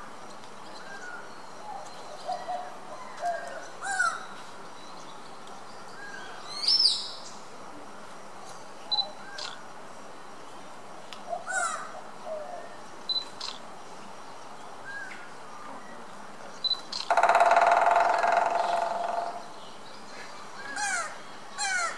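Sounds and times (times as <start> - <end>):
woodpecker drumming on wood: 17.0 - 19.5.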